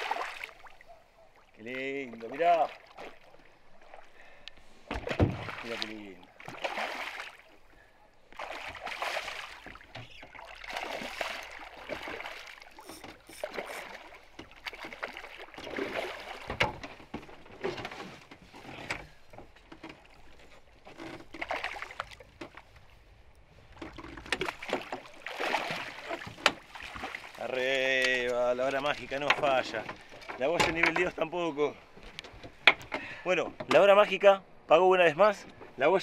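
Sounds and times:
fish thrashing and splashing: 0.0 - 0.8, 6.3 - 7.7, 8.3 - 17.7, 21.0 - 22.6, 23.8 - 27.5
water sloshing against hull: 0.0 - 34.2.

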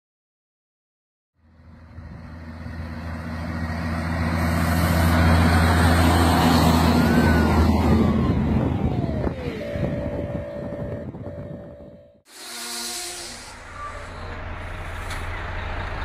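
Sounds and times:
diesel truck passing: 1.4 - 12.2, 13.3 - 16.0
high whine dropping in pitch: 6.3 - 14.4
steady tone: 8.2 - 12.2.

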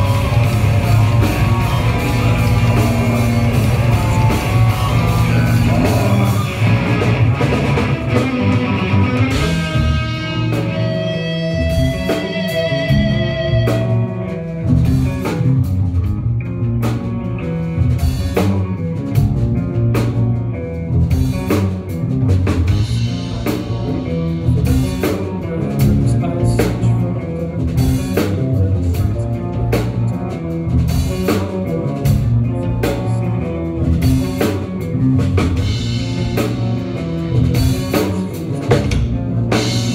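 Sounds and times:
drum kit beat: 0.0 - 39.9
electric guitars: 0.0 - 39.9.

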